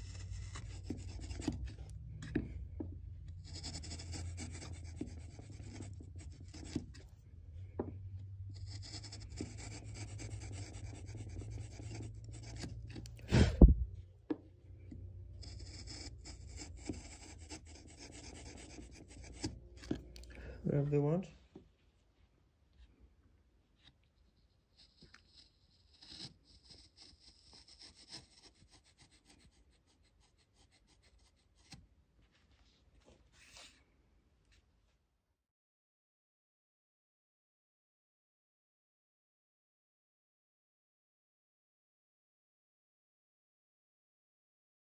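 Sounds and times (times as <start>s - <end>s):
chisel scraping wood: 0.0s - 7.1s, 8.4s - 13.8s, 14.8s - 20.5s, 24.3s - 30.0s
low steady hum: 0.0s - 21.4s.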